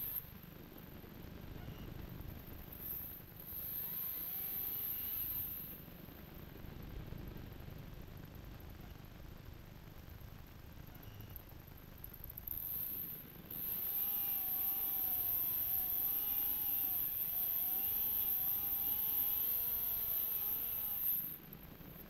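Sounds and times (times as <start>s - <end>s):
chainsaw cutting wood: 3.4s - 5.8s, 12.5s - 21.5s.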